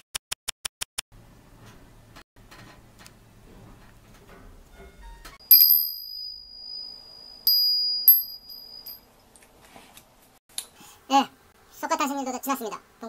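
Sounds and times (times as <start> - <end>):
hand bell ringing: 5.5 - 9.0.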